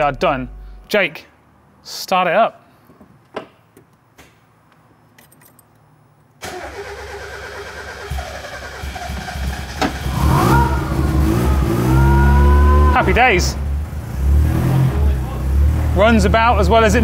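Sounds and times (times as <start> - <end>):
car engine cranking and starting: 6.4 - 17.0.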